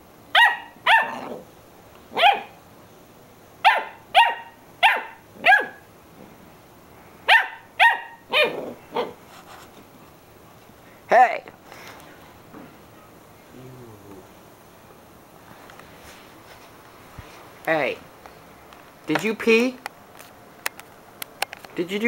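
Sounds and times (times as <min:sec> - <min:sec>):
puppy barking: 0:00.3 - 0:01.4, 0:02.1 - 0:02.6, 0:03.6 - 0:05.9, 0:07.3 - 0:09.2.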